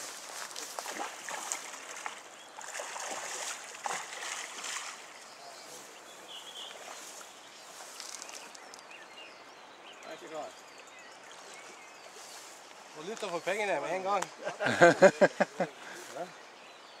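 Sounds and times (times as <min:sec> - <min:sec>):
splashing and rustling: 0:00.0 - 0:05.9, 0:06.5 - 0:08.8
river water rushing: 0:00.9 - 0:05.3.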